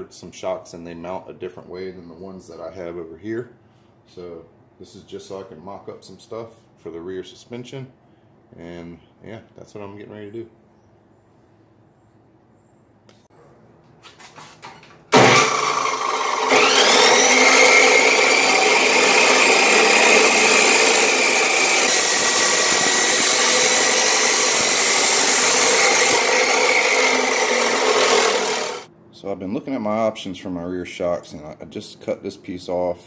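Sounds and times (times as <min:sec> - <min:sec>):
chop saw grinding through steel: 0:15.1 - 0:28.9.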